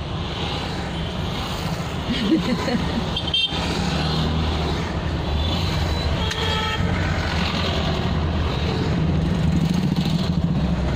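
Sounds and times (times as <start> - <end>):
idling vehicle engines hum: 1.9 - 3.2.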